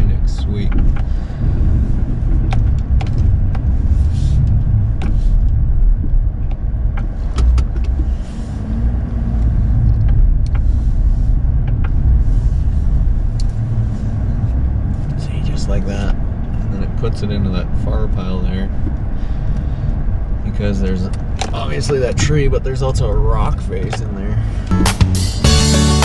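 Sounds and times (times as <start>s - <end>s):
cab rumbling: 0.0s - 26.0s
truck engine running: 23.2s - 26.0s.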